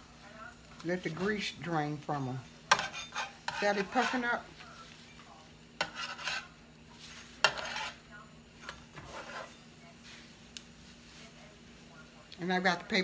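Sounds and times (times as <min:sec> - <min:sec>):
spatula scraping a griddle: 0:02.7 - 0:04.6, 0:05.8 - 0:10.3.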